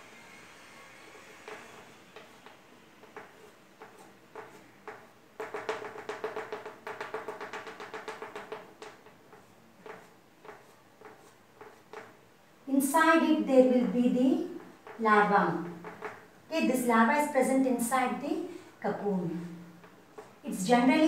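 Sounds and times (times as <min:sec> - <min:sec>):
rapid chalk strokes: 0:00.6 - 0:12.2, 0:19.8 - 0:20.4
chalk tapping and scraping: 0:01.1 - 0:12.3, 0:14.1 - 0:16.4, 0:19.4 - 0:20.6.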